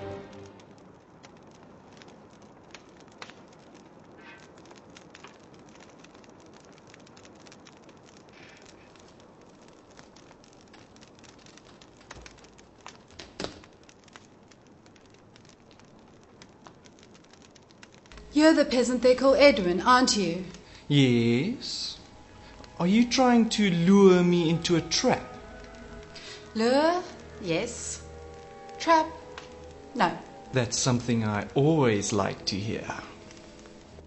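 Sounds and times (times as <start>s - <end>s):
faint crackling: 0.0s - 34.0s
low steady hiss: 0.0s - 34.0s
small clicks: 0.4s - 18.3s.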